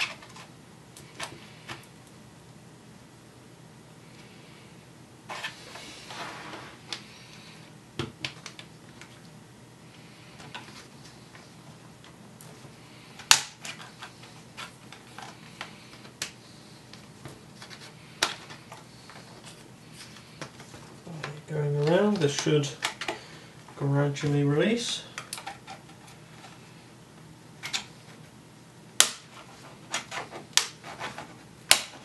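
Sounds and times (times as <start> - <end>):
plastic clips snapping: 31.7 - 32.0.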